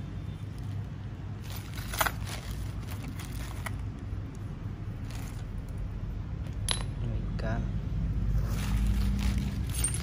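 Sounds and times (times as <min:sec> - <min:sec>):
plastic bag crinkling: 0:00.5 - 0:05.8, 0:08.5 - 0:10.0.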